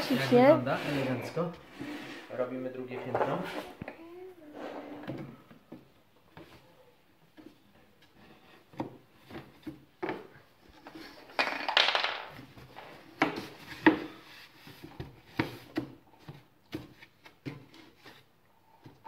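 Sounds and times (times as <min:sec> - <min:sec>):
rough wood scraping: 0:00.0 - 0:03.8.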